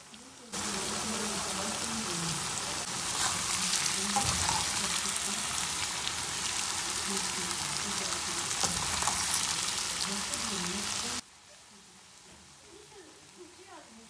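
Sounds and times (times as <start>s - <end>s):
potato slices sizzling in oil: 0.0s - 14.0s
spatula stirring in pan: 2.8s - 11.2s.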